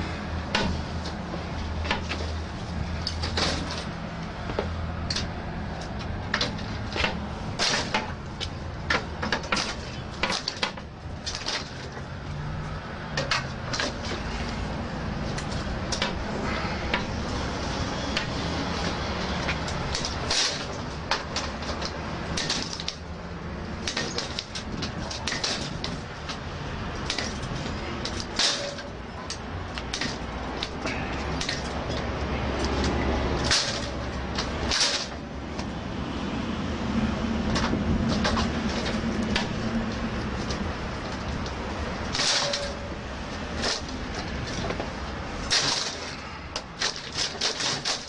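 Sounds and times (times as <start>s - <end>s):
pry bar straining metal gate: 18.1s - 23.2s, 23.8s - 35.3s, 40.4s - 48.0s.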